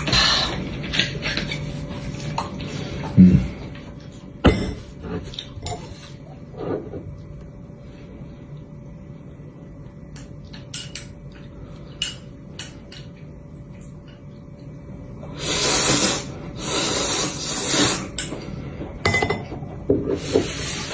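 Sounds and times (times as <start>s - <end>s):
slurping noodles: 15.4s - 18.2s.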